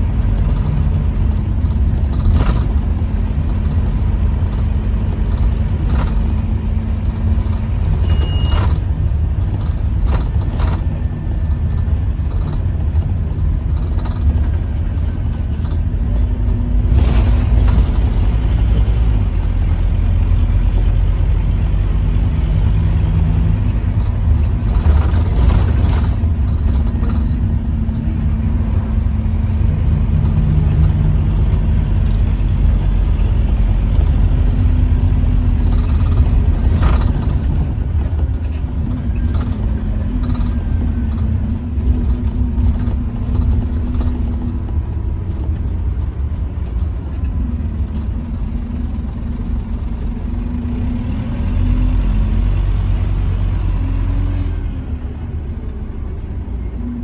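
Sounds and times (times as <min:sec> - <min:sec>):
bus diesel engine running: 0:00.0 - 0:57.0
bus interior rattles: 0:00.0 - 0:57.0.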